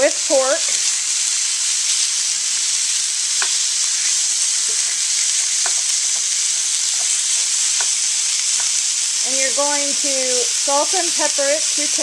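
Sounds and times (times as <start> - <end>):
meat sizzling in a skillet: 0.0 - 12.0
spoon knocking against pan: 5.6 - 6.3, 7.8 - 8.0.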